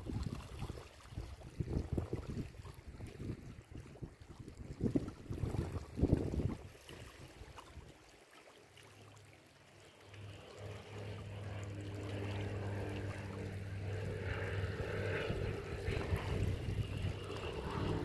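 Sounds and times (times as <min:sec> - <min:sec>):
waves lapping on rocky shore: 0:00.0 - 0:18.0
boat engine droning: 0:09.0 - 0:18.0.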